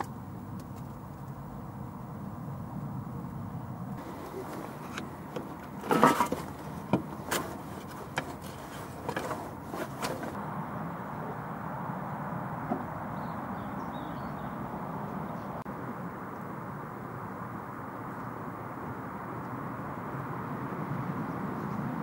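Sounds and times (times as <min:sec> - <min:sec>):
metal knocks and clanks: 0:04.0 - 0:10.4.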